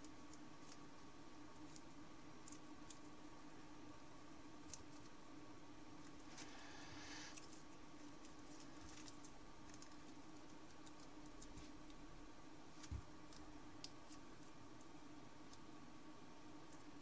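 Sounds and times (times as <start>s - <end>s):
paper crinkling while folded: 7.3s - 12.0s.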